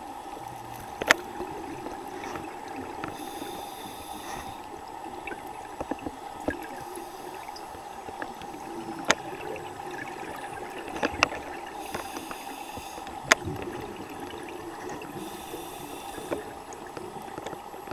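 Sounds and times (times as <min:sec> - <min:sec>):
underwater hum: 0:00.0 - 0:17.9
regulator breathing hiss: 0:03.1 - 0:04.7, 0:06.8 - 0:07.7, 0:11.8 - 0:13.2, 0:15.2 - 0:16.6.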